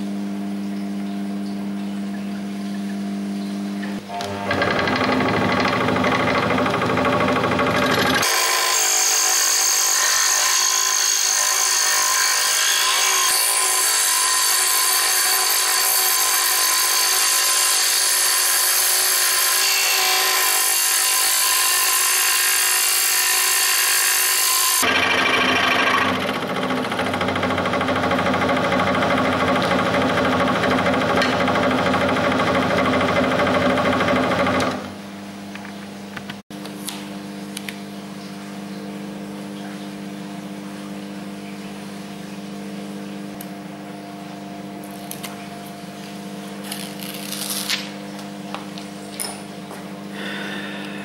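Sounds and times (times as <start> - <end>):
scroll saw cutting wood: 4.2 - 34.8.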